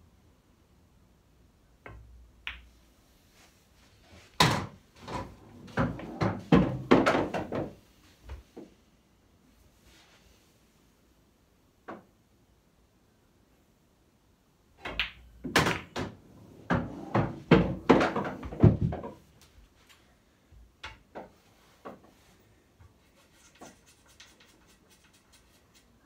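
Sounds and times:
pool balls clicking: 14.8 - 19.1
balls knocking against cushions: 16.7 - 19.2.

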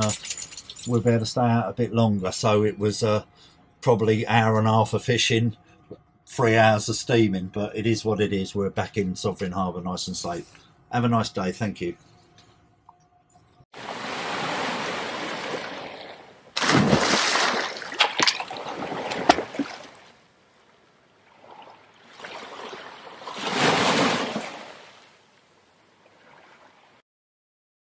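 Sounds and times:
loud water splash: 13.8 - 20.1, 21.4 - 25.2
water rushing surge: 13.8 - 20.1, 21.4 - 25.2.

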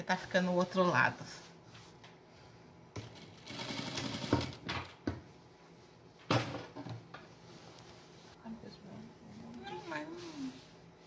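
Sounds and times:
sewing machine stitching: 3.0 - 4.6.

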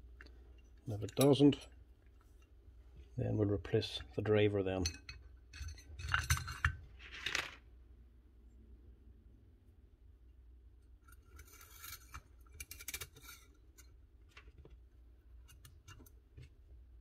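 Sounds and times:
metallic scraping and clinking: 4.7 - 7.4, 11.0 - 13.9.

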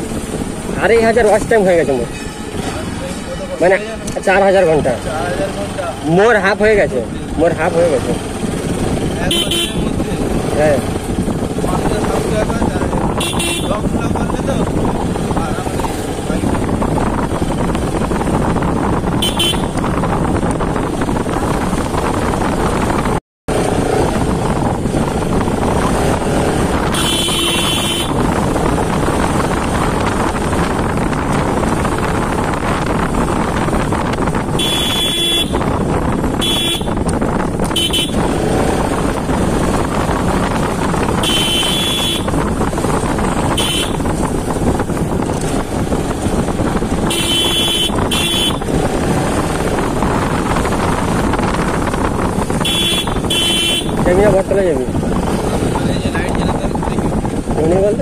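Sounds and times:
motorcycle engine running: 5.2 - 58.0
motorcycle horn toots: 9.3 - 10.0, 13.1 - 14.0, 19.1 - 20.0, 26.8 - 28.4, 34.4 - 38.4, 41.0 - 42.6, 43.4 - 44.2, 47.0 - 48.8, 52.5 - 54.1.

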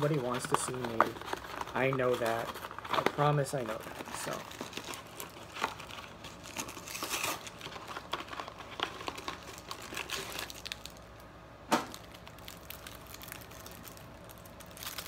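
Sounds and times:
plastic wrapper crinkling: 0.0 - 15.0.

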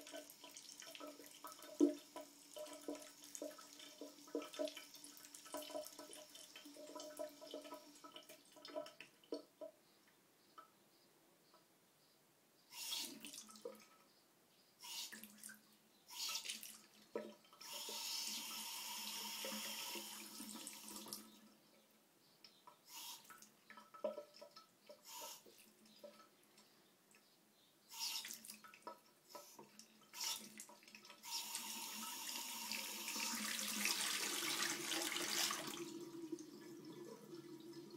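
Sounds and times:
water splashing into washbasin: 0.0 - 9.7, 28.2 - 37.9.

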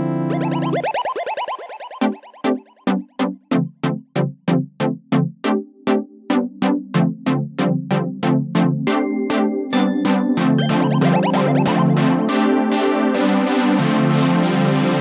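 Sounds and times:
synthesizer chords: 0.0 - 3.0, 10.6 - 13.3
electronic beat: 0.3 - 2.7, 10.6 - 12.3.

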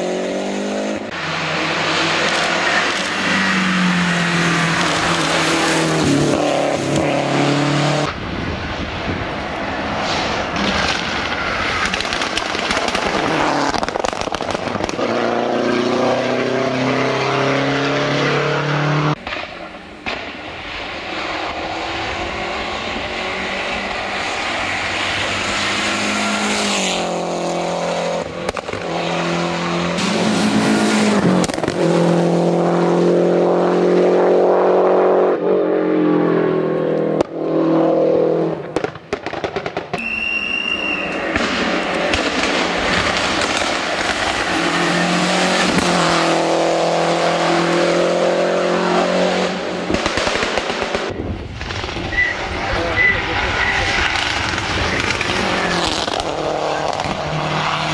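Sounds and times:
rally car engine at full throttle: 0.0 - 57.9
sharp cracks: 10.0 - 15.0, 28.4 - 28.9, 38.7 - 44.8, 49.8 - 52.2, 54.0 - 57.3.

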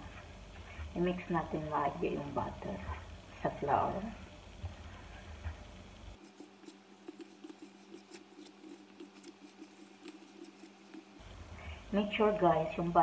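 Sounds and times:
hands rubbing butter into flour: 6.2 - 11.2.

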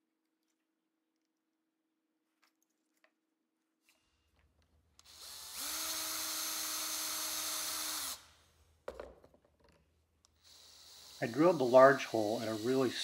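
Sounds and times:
cordless drill boring through brass: 5.0 - 8.4, 10.4 - 13.0.

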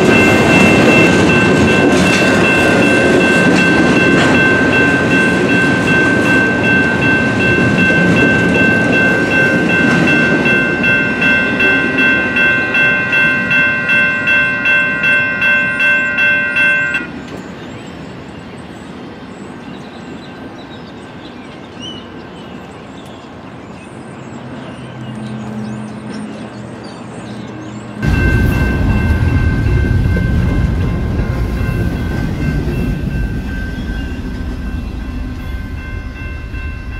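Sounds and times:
train cars clattering on rails: 0.0 - 14.8, 28.0 - 36.9
railroad crossing bell ringing: 0.0 - 19.2, 23.8 - 36.9.

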